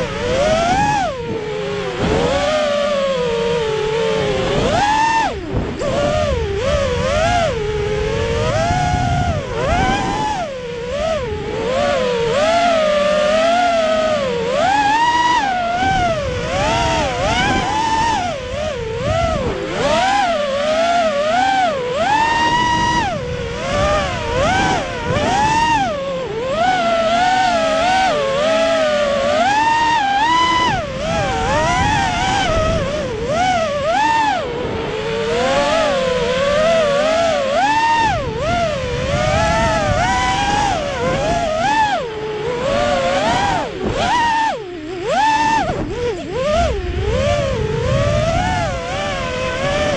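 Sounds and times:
drone motors whining: 0.0s - 49.9s
wind noise: 0.0s - 49.9s.

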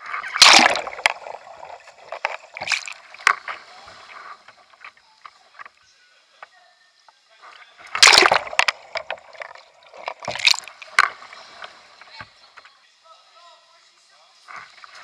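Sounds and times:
water splashing and churning: 0.0s - 4.5s, 7.9s - 12.1s
rush of water: 0.0s - 4.8s, 7.9s - 12.3s.

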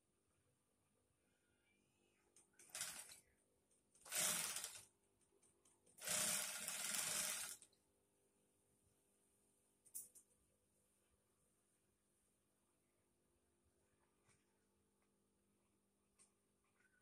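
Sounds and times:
sewing machine stitching: 2.6s - 3.2s, 4.0s - 4.8s, 6.0s - 7.7s.

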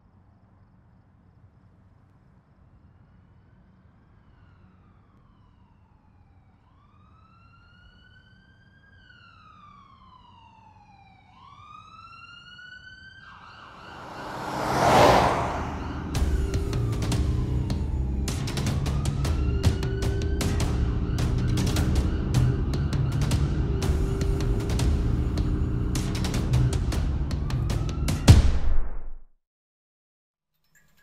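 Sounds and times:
siren wailing: 4.1s - 28.2s
vehicle rushing past: 13.4s - 17.9s.

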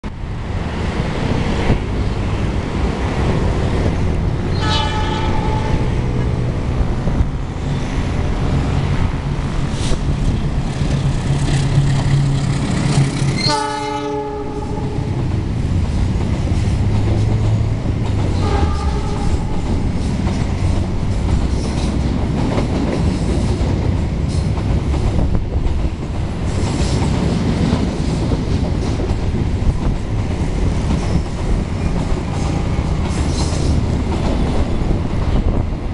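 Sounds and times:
train horn: 4.5s - 6.3s, 13.4s - 15.2s, 18.4s - 19.6s.

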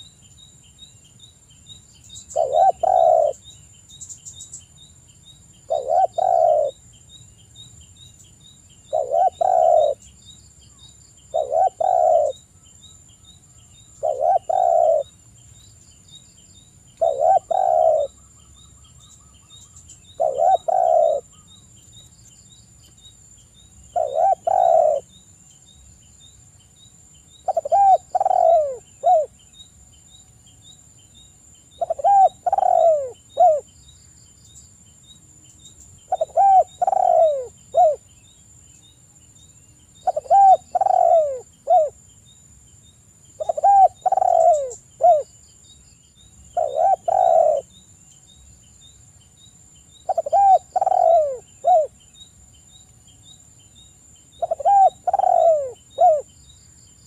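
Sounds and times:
dove cooing: 2.3s - 3.4s, 5.7s - 6.8s, 8.9s - 10.0s, 11.3s - 12.4s, 14.0s - 15.1s, 17.0s - 18.2s, 20.1s - 21.5s, 23.9s - 25.1s, 27.4s - 29.3s, 31.8s - 33.7s, 36.1s - 38.0s, 40.0s - 42.0s, 43.4s - 45.3s, 46.6s - 47.7s, 50.1s - 51.9s, 54.4s - 56.3s.

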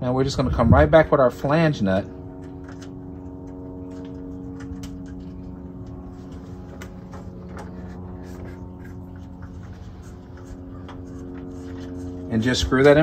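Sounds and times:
steady machine hum: 0.0s - 13.0s.

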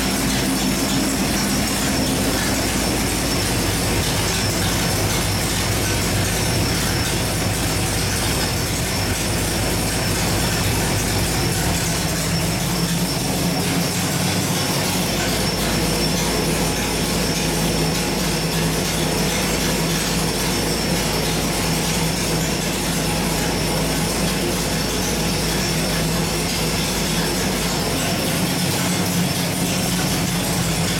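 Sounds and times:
v-eight engine running steadily: 0.0s - 30.9s.

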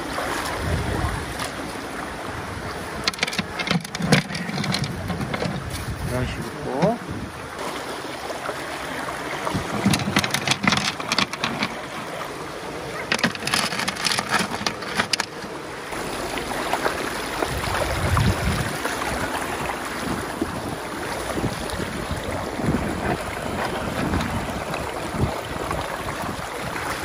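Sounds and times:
stream water rushing: 0.0s - 27.0s
stones clicking and knocking: 3.0s - 5.8s, 9.8s - 11.9s, 13.1s - 15.5s.

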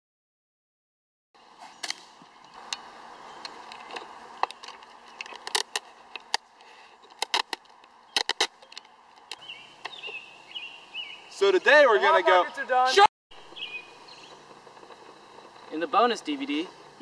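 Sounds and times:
faint outdoor hiss: 1.4s - 17.0s
sharp clicks and crackles: 1.8s - 10.2s, 14.2s - 17.0s
high bird chirps: 8.0s - 12.7s, 13.3s - 14.5s.

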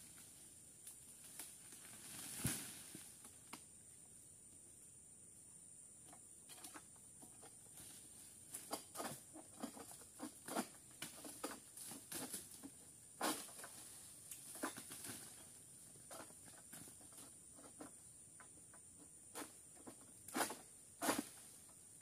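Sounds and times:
sickle hacking palm fronds: 1.2s - 3.4s, 8.4s - 15.4s, 20.2s - 21.6s.

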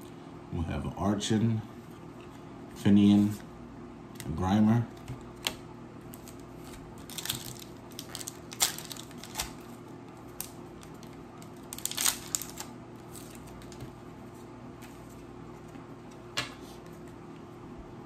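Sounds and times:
foil wrapper crinkling and tearing: 6.1s - 13.8s.

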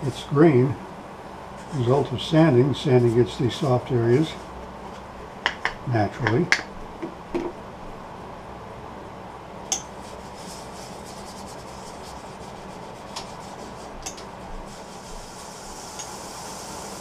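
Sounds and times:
steady low hum: 0.0s - 17.0s
sandpaper rubbing wood: 10.0s - 14.0s, 14.6s - 17.0s.

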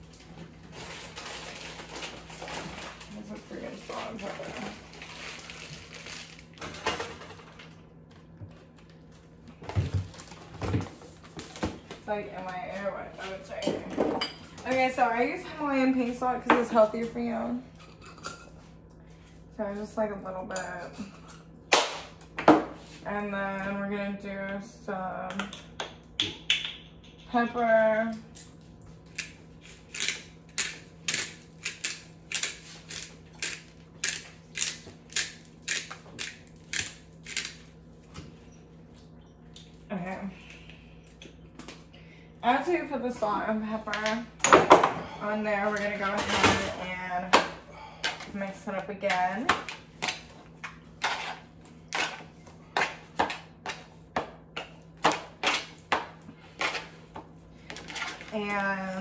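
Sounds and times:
faint steady hum: 0.0s - 59.0s
pepper grinder crunching: 29.1s - 37.7s.

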